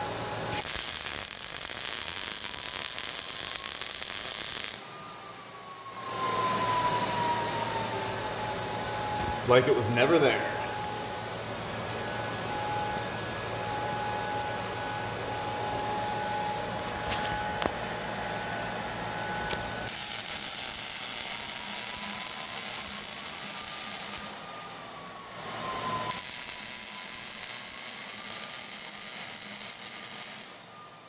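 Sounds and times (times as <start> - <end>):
faint wavering whine: 0.0 - 31.0
welding arc crackling and hissing: 0.5 - 4.9, 19.9 - 24.4, 26.1 - 30.7.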